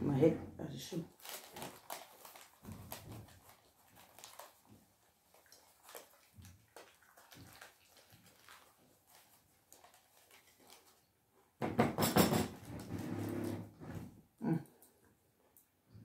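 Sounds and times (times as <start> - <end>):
person chewing bread: 1.1 - 11.6.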